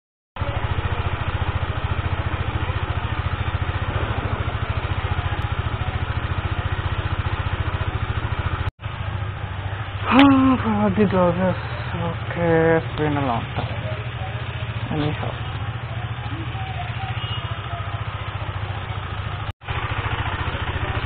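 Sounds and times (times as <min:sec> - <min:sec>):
motorcycle engine idling: 0:00.4 - 0:21.0
quieter engine hum: 0:00.4 - 0:21.0.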